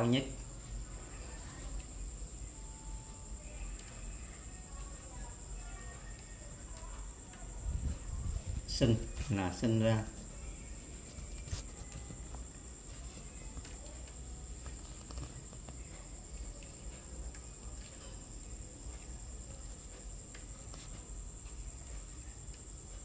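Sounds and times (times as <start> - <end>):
high-pitched whine: 0.0 - 23.0
brush strokes on paper: 7.6 - 16.0.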